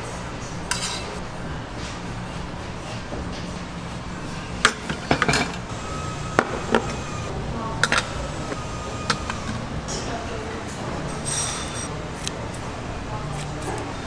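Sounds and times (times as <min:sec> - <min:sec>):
steady background hum: 0:00.0 - 0:14.0
utensils and dishes clinking: 0:00.7 - 0:01.2, 0:04.6 - 0:12.6.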